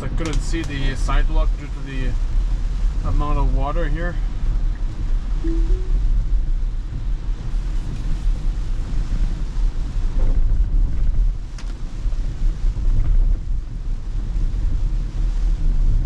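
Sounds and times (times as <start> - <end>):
rain on car body: 7.0 - 15.6.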